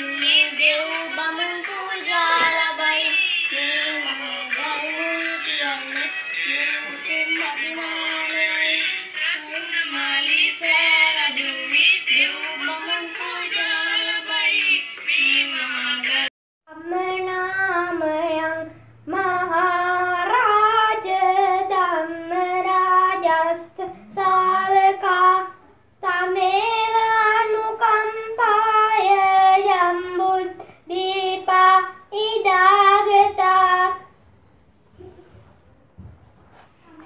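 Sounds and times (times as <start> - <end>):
child singing solo: 0.0 - 5.9
person singing: 0.0 - 17.5.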